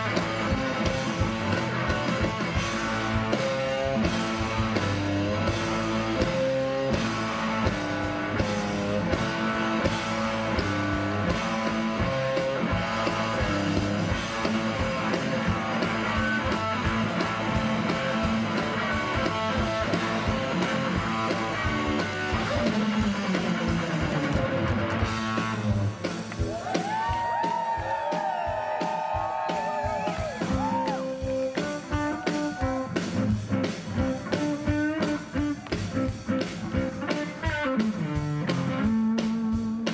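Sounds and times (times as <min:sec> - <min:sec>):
bass guitar: 0:00.0 - 0:39.9
drums: 0:00.0 - 0:39.9
electric guitar soloing: 0:00.0 - 0:39.9.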